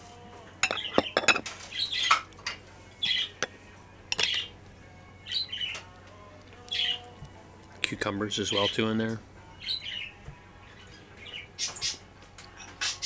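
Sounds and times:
metal spoon clinking and scraping: 0.6s - 1.5s, 3.4s - 4.5s.

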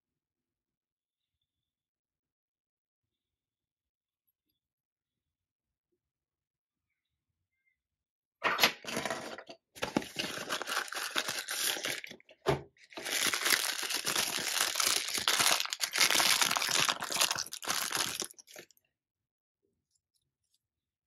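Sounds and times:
tissue paper crinkling: 9.8s - 12.1s, 12.9s - 18.6s.

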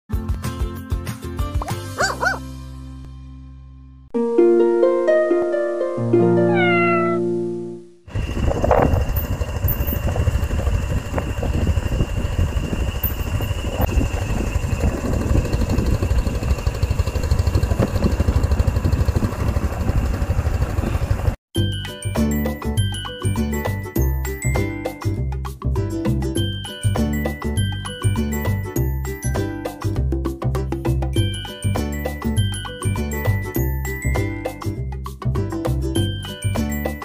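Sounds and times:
wind buffeting microphone: 8.1s - 21.4s
chiming logo jingle: 21.6s - 25.0s, 31.2s - 34.6s.

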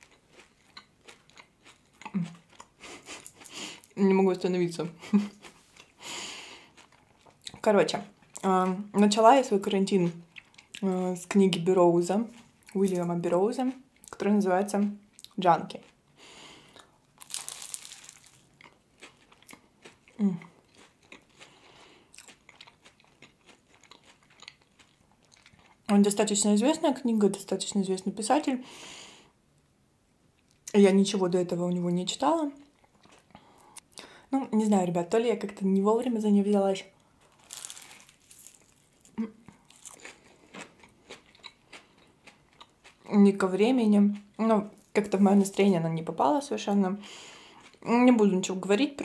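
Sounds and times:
crunchy pastry bite and chewing: 0.0s - 4.0s, 16.8s - 25.9s, 37.1s - 43.1s.

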